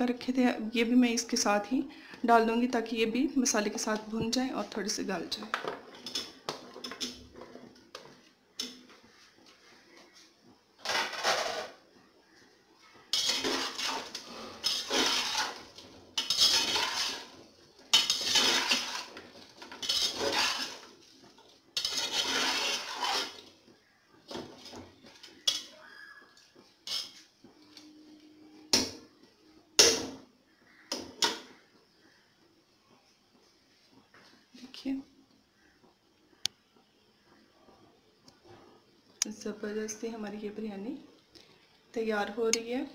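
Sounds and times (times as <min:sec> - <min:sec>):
spoon stirring and scraping pot: 0:03.4 - 0:11.8, 0:13.0 - 0:29.2.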